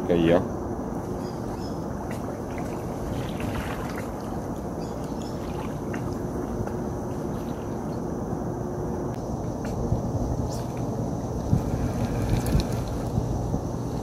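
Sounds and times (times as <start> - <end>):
faint steady hum: 0.0 - 14.0
wind: 0.0 - 14.0
river water rushing: 1.0 - 8.8.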